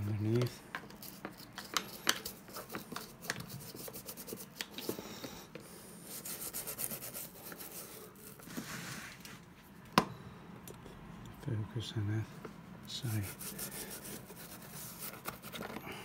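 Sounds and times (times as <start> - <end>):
toothbrush scrubbing leather: 1.0 - 4.9, 6.0 - 8.4, 13.0 - 15.6.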